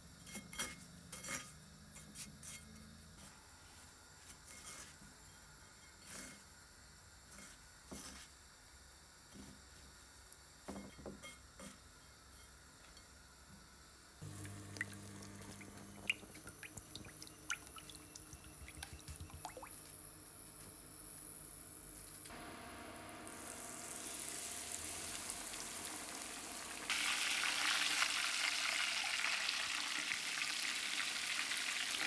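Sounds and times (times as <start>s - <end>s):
hot oil sizzling in a frying pan: 22.4s - 32.0s.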